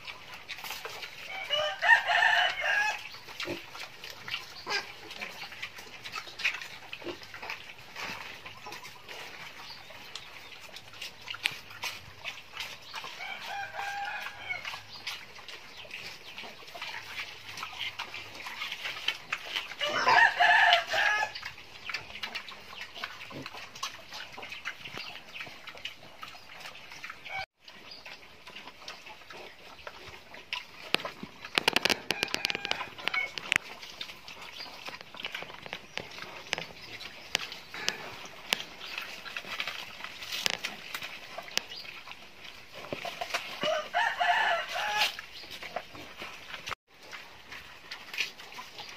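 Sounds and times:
hens clucking: 0.0 - 46.8
pigs chewing feed: 0.0 - 48.9
rooster crowing: 1.3 - 3.0, 13.2 - 14.6, 19.8 - 21.4, 32.1 - 33.3, 43.6 - 45.2.

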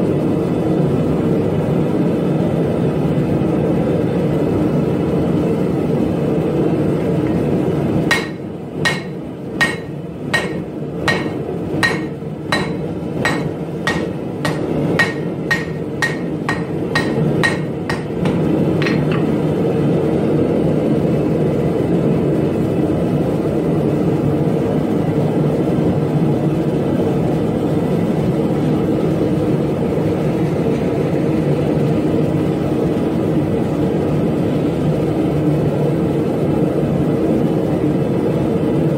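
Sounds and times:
gas forge burner roar: 0.0 - 38.9
hammer ringing on anvil: 8.1 - 19.2.

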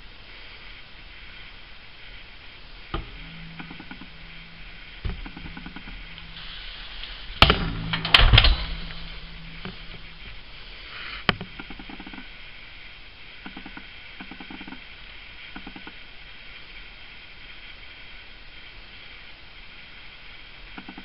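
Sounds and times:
faint low hum: 0.0 - 21.0
sharp knocks and clicks: 2.9 - 6.5, 7.4 - 10.4.

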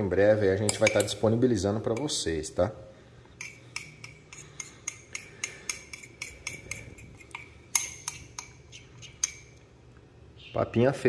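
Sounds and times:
metal utensil clinking ceramic mug: 0.6 - 1.2, 3.4 - 8.6.

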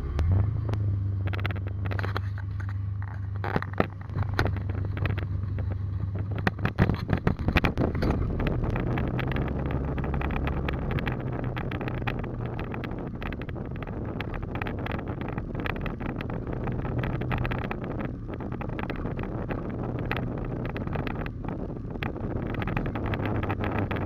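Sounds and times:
vehicle engine running: 0.0 - 24.0
wind buffeting microphone: 0.1 - 24.0
camera handling knocks and rattles: 1.3 - 9.2.

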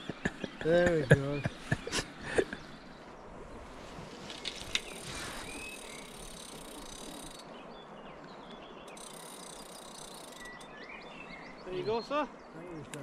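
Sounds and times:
bird chirp: 0.0 - 13.0
low outdoor background noise: 0.0 - 13.0.

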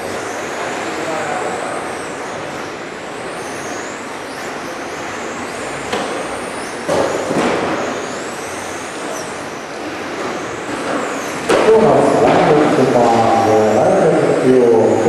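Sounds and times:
electric motor whines: 0.0 - 15.0
steady rush of noise: 0.0 - 15.0
sharp knocks: 5.9 - 8.0.

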